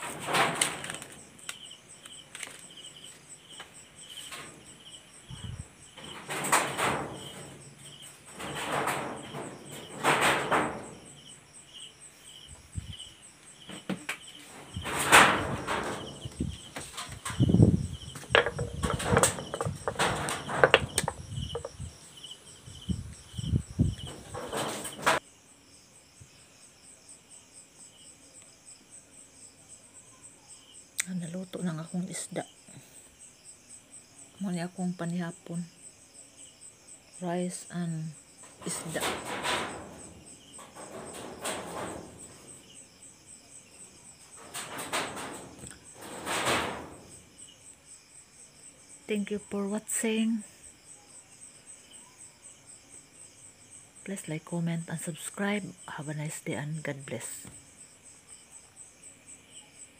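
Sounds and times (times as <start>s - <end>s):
night insects chirping: 0.0s - 59.9s
knocks and thumps: 5.3s - 11.2s, 13.6s - 22.0s, 23.4s - 25.2s, 38.4s - 42.8s, 44.2s - 47.2s.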